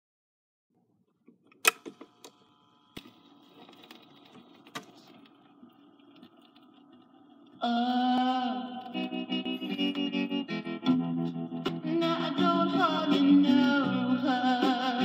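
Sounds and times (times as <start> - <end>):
record player clicks and knocks: 1.2 - 2.4, 3.0 - 7.6
record player motor whine: 1.6 - 15.0
music: 7.6 - 15.0.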